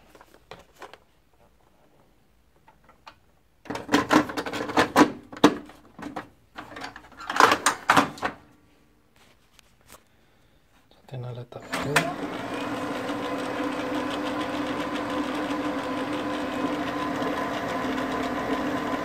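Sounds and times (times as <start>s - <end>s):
plastic clicking and clattering: 0.1s - 1.6s, 2.5s - 8.4s.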